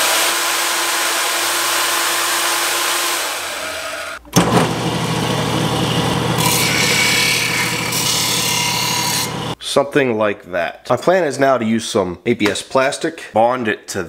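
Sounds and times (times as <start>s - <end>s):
band saw cutting plastic: 0.0s - 9.6s
bench grinder running: 0.0s - 9.6s.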